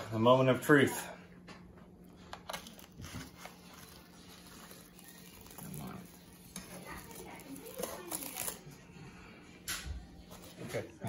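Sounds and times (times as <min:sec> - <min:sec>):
crisp pastry crinkling: 0:02.1 - 0:08.8.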